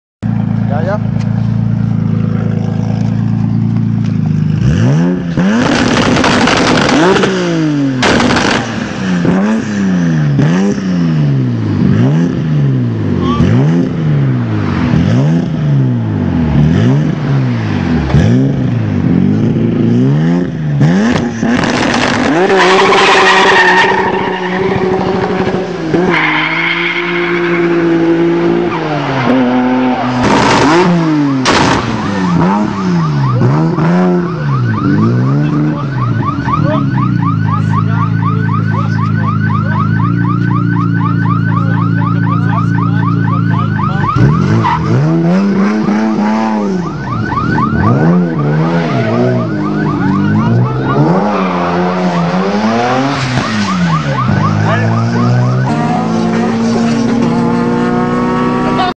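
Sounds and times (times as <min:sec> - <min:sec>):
car engine revving: 0:00.2 - 0:58.9
sharp exhaust cracks: 0:05.4 - 0:09.4, 0:30.1 - 0:32.1.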